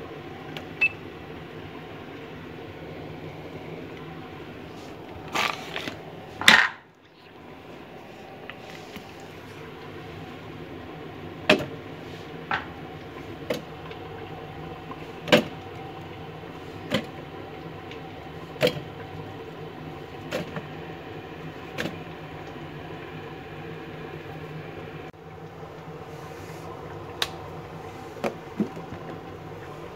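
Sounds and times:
steady low hum: 0.0s - 29.9s
onions dropping into metal bowl: 5.4s - 6.8s.

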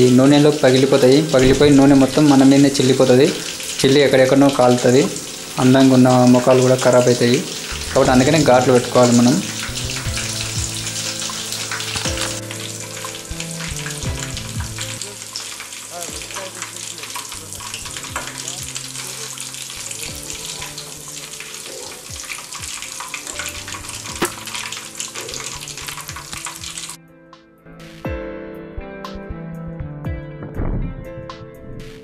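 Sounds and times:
chicken sizzling in hot oil: 0.0s - 27.0s
sharp tap: 24.2s - 24.5s.

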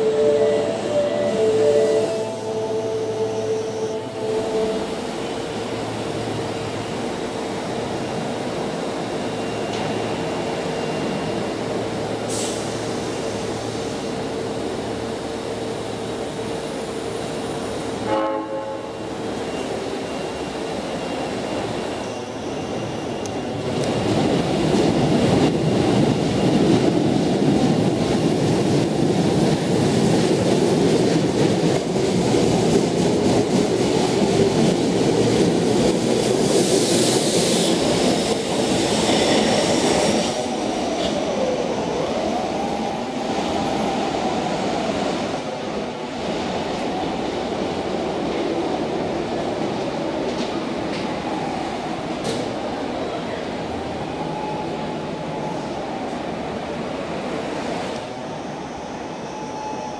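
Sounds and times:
short train horn: 0.0s - 4.9s, 18.0s - 19.0s
electric train humming: 0.0s - 57.6s
train running along track: 0.0s - 59.9s.

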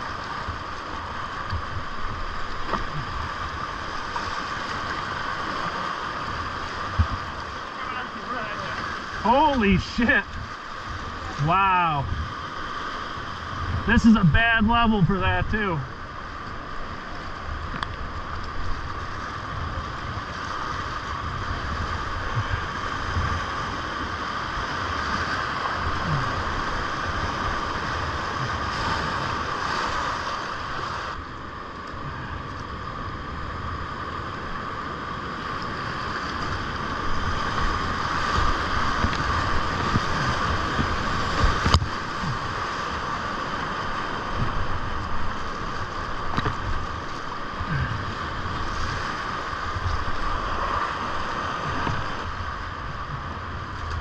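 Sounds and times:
rushing whitewater: 0.0s - 54.0s
wind buffeting on microphone: 17.6s - 31.2s, 33.5s - 54.0s.

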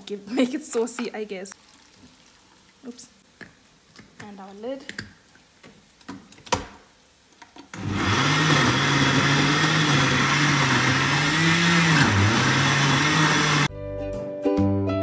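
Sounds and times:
blender running at high speed: 7.8s - 13.7s.

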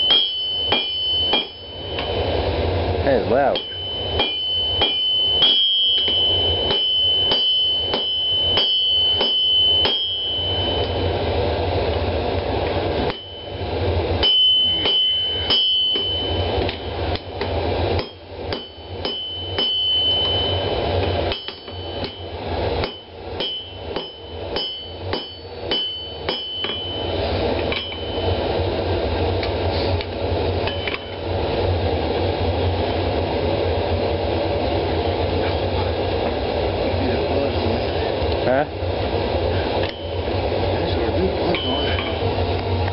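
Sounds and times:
hammer blows on anvil: 0.0s - 2.3s, 3.3s - 11.1s, 13.0s - 28.5s, 41.4s - 42.4s.

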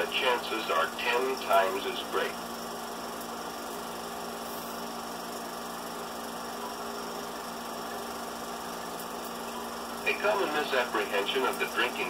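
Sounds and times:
narration: 0.0s - 2.4s, 10.0s - 12.0s
film projector hum and hiss: 0.0s - 12.0s.

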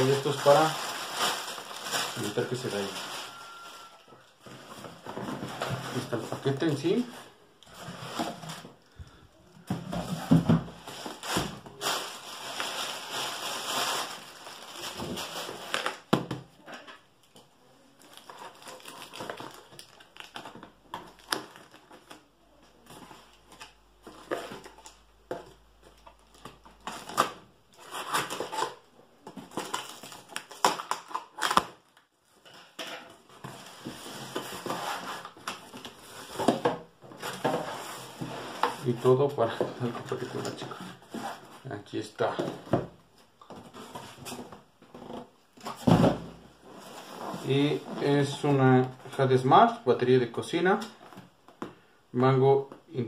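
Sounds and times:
cardboard and tape crackling: 0.0s - 7.1s, 7.7s - 16.7s, 17.9s - 41.7s.

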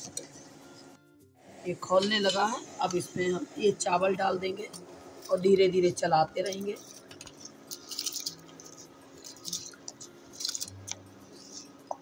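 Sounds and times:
juice boiling and bubbling: 1.4s - 12.0s
wet squishing of rice stirred: 6.4s - 12.0s.

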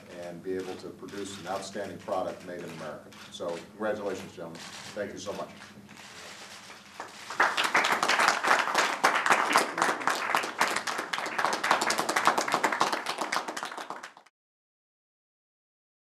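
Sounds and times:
people clapping: 6.9s - 14.3s.

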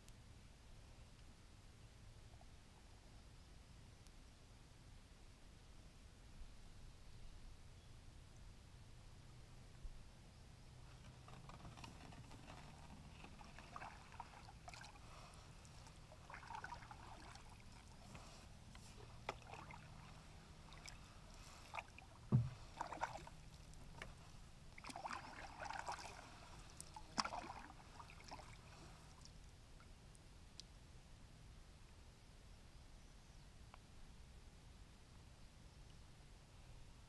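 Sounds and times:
paddle swishing water: 10.8s - 29.4s.

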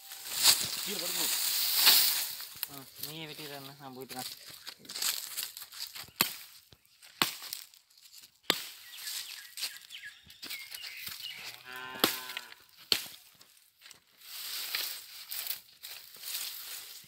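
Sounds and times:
machete chopping wood: 6.2s - 6.5s, 7.2s - 7.7s, 8.5s - 8.8s, 12.0s - 12.2s, 12.9s - 13.2s
cow mooing: 11.6s - 12.6s.

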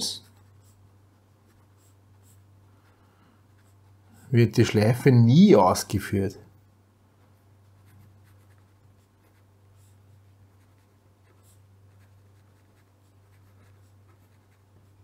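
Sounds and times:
low steady hum: 0.0s - 15.0s
pen scratching on paper: 0.2s - 2.5s, 3.5s - 4.2s, 7.2s - 15.0s.

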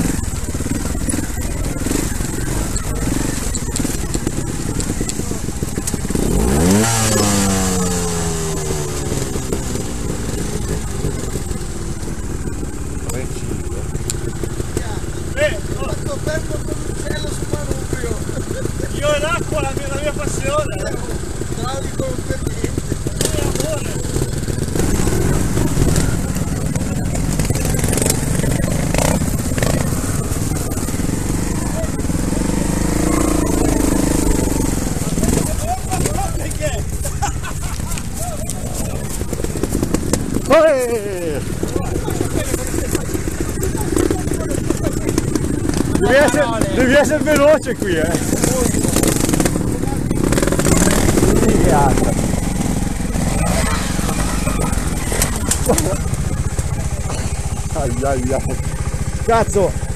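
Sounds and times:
engine revving up and down: 0.0s - 11.4s, 23.1s - 37.0s, 38.7s - 58.6s
motorcycle engine running roughly: 0.0s - 59.9s.

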